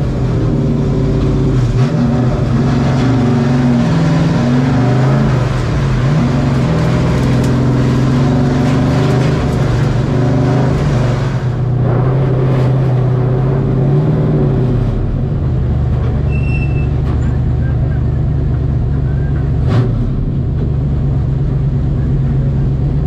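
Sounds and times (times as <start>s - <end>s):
truck engine droning inside cab: 0.0s - 23.0s.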